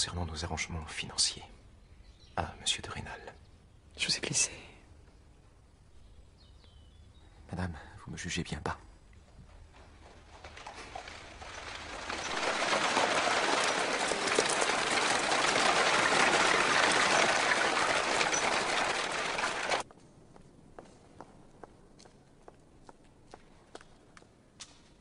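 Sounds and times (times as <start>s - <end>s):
carriage wheels and hooves: 9.2s - 19.9s.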